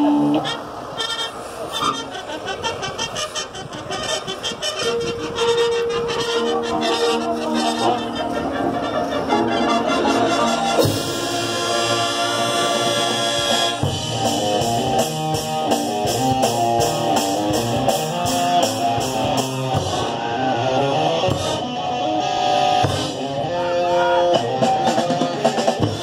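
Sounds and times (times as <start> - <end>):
marching band playing: 0.0 - 26.0
front ensemble percussion playing: 2.0 - 26.0
steady beat: 13.5 - 22.0.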